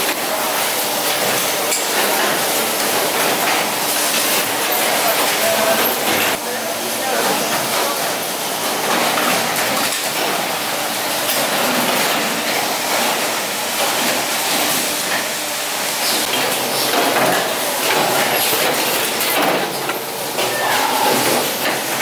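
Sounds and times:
machines hissing steadily: 0.0 - 22.0
machine clatter and clicks: 8.7 - 10.6, 16.0 - 22.0.

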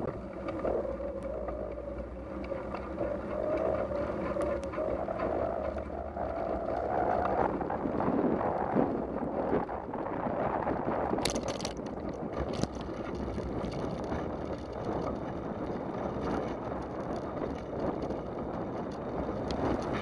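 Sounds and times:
wind on microphone: 0.0 - 20.0
bicycle rattling clicks: 11.1 - 20.0.

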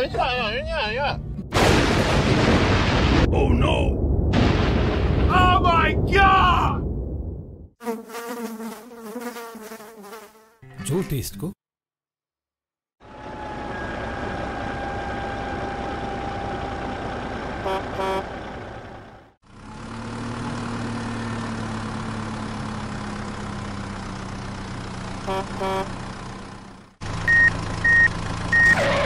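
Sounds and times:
tractor engine running: 13.0 - 29.0
horn toots: 17.6 - 18.3, 25.2 - 26.0
reversing alarm beeping: 27.3 - 28.8.

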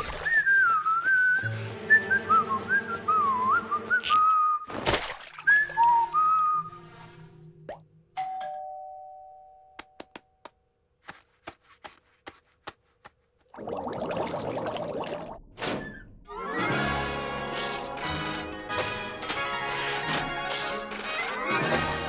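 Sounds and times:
whistled tune over light music: 0.0 - 4.8, 5.4 - 7.3.

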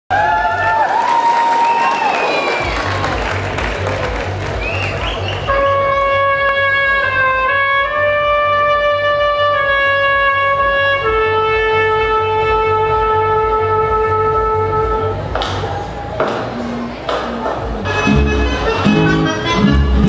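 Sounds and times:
sustained melody notes: 5.5 - 15.9, 16.5 - 20.0.

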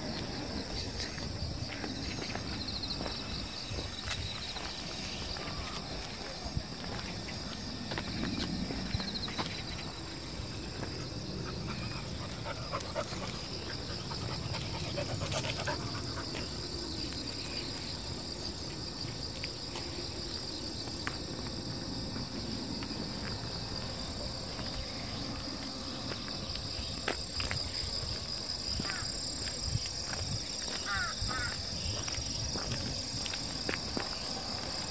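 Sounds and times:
insects trilling: 0.0 - 34.9
light steps on paved path: 0.0 - 34.9
dog panting: 11.5 - 16.6.

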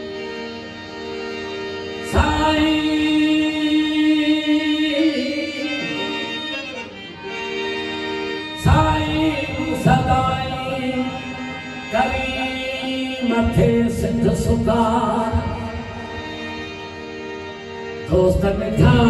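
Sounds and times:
harmonium: 0.0 - 19.0
man singing into a microphone: 1.9 - 7.1, 8.5 - 16.8, 17.9 - 19.0.

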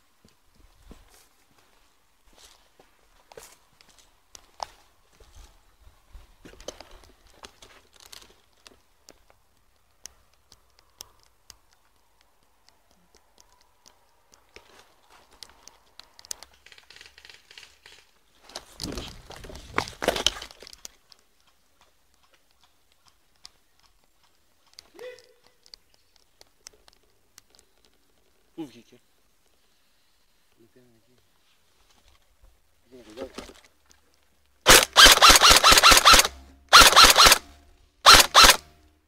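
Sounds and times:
footsteps crunching on gritty path: 0.6 - 8.8
small scattered clicks: 6.6 - 29.7, 33.7 - 39.0.

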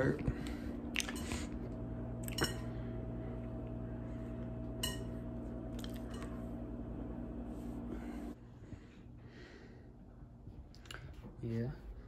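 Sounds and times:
low appliance hum: 0.0 - 12.0
dishes clinking: 2.3 - 2.8, 4.8 - 5.2.

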